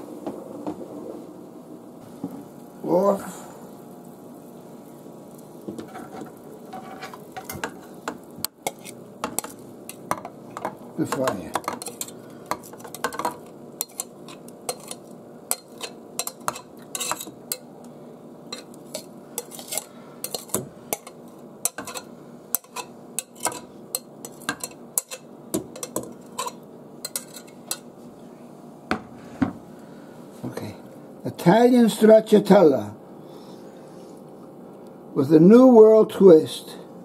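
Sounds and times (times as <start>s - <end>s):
metal spatula scraping glass bowl: 5.8s - 7.7s, 12.7s - 17.3s, 18.5s - 21.1s.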